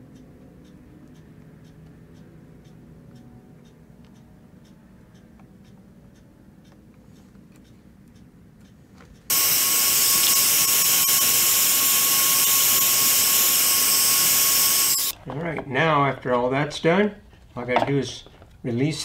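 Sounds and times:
faint ticking: 0:00.0 - 0:11.9
heat gun fan hiss and whine: 0:04.6 - 0:15.2.

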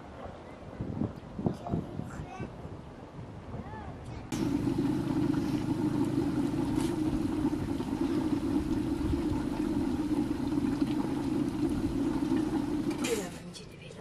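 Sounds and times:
wood fire rumbling: 0:04.3 - 0:13.2.

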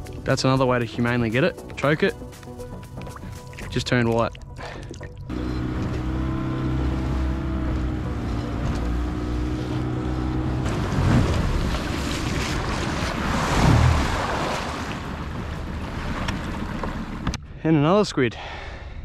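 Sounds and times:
water lapping on boat: 0:01.9 - 0:17.4
low thumps: 0:04.9 - 0:14.4.

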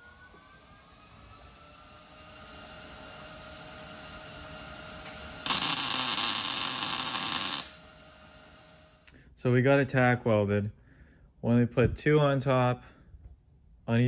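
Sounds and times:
welding arc crackling hiss: 0:05.0 - 0:08.6.

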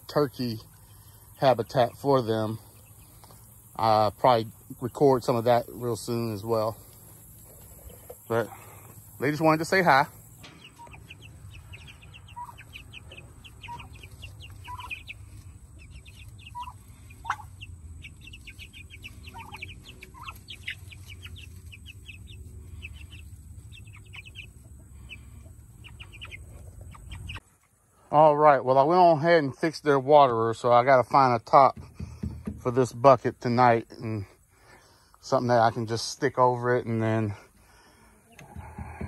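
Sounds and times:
chicks peeping: 0:00.0 - 0:39.0
chicken clucks: 0:00.1 - 0:27.9, 0:35.4 - 0:39.0
steady low rumble: 0:02.5 - 0:27.4.

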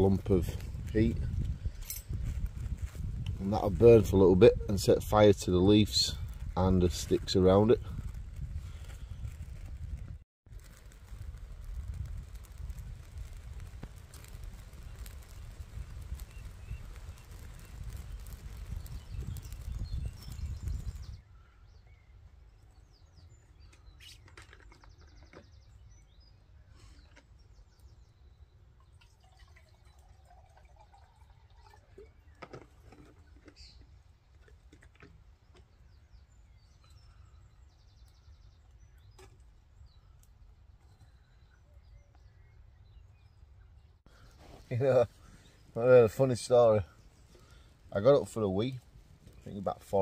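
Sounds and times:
wood fire crackling in a stove: 0:04.8 - 0:21.2
faint birdsong: 0:14.7 - 0:50.0
water poured into a pot: 0:28.9 - 0:32.2.

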